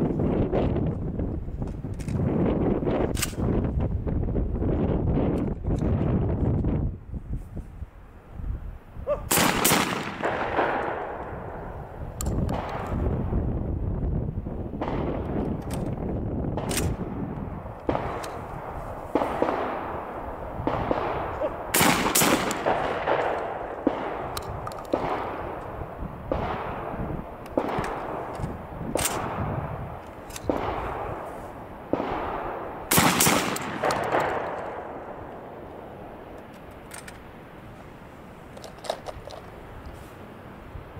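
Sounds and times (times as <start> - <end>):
loud shotgun shots with echo: 9.3 - 11.5, 17.9 - 24.3, 24.9 - 25.6, 26.3 - 28.3, 30.5 - 31.2, 31.9 - 35.1.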